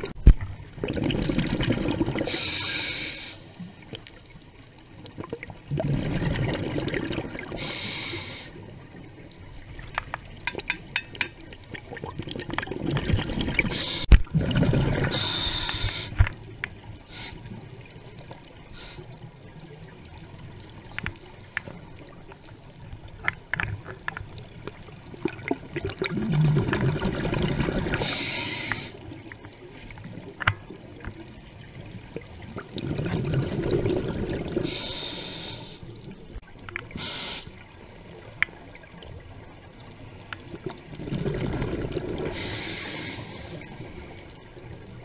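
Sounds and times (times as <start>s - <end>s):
faint clicking and crackling: 0.0s - 45.0s
diver breathing through regulator: 2.2s - 3.5s, 7.5s - 8.6s, 13.7s - 14.1s, 15.0s - 16.3s, 28.0s - 29.0s, 34.6s - 35.9s, 36.9s - 37.6s, 42.3s - 44.4s.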